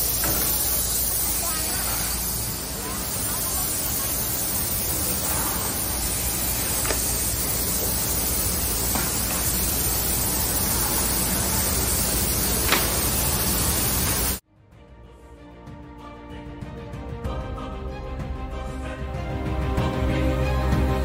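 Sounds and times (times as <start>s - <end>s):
woodworking machinery rushing: 0.0s - 14.4s.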